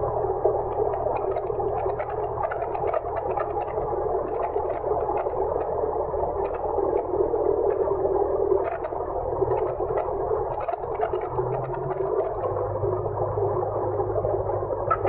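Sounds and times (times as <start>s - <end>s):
propeller plane engine drone: 0.0s - 15.0s
light rattling ticks: 0.6s - 5.8s, 6.4s - 8.0s, 8.6s - 13.2s.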